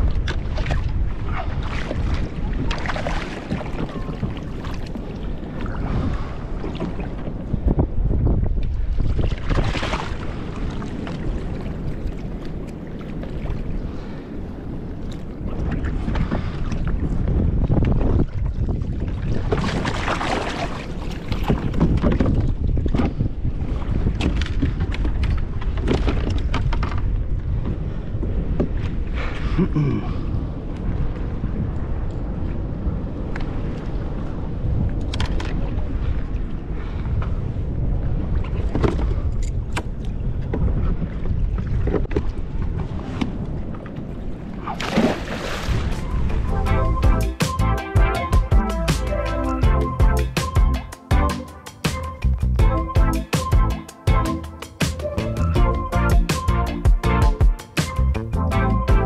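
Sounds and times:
water lapping at plastic hull: 0.0 - 14.3, 15.0 - 29.5, 38.3 - 46.5
wind buffeting microphone: 0.0 - 50.9.

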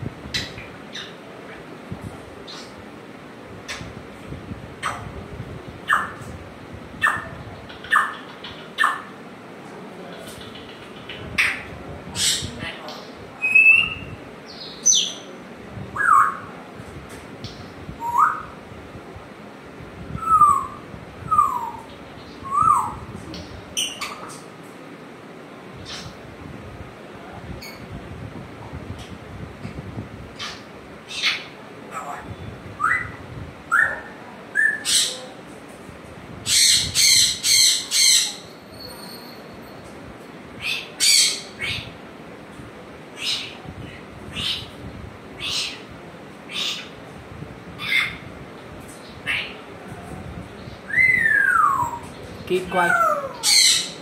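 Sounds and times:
parrot squawking: 36.5 - 38.4, 52.8 - 54.0.

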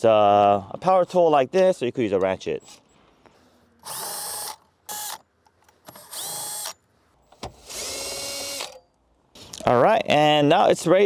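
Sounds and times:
cordless drill whining: 3.8 - 5.2, 5.9 - 6.8, 7.6 - 8.8.

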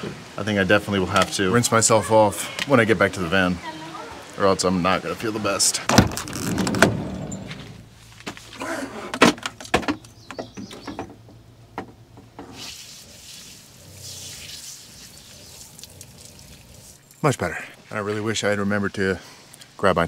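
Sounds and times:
van side door opening: 5.9 - 7.8
water spraying from hose: 12.4 - 17.2.

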